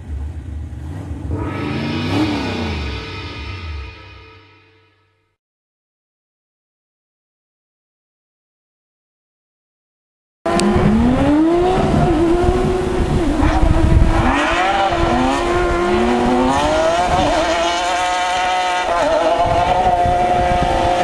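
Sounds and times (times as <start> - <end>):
racing car engines revving: 0.0 - 4.2, 10.5 - 21.0.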